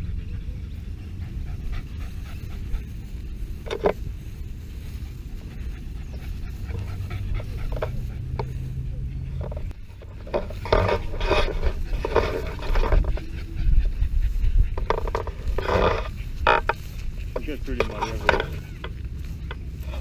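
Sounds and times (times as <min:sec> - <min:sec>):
dogs panting: 0:00.0 - 0:20.0
wind rumble: 0:00.0 - 0:20.0
microphone handling noise: 0:09.4 - 0:20.0.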